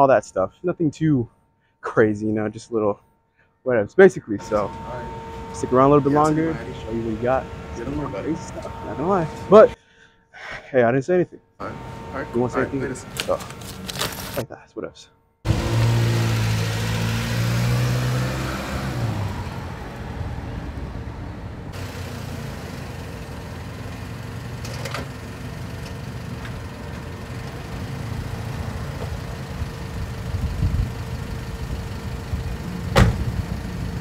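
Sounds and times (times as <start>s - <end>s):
car engine idling: 4.4s - 9.8s, 11.6s - 14.4s, 18.4s - 34.0s.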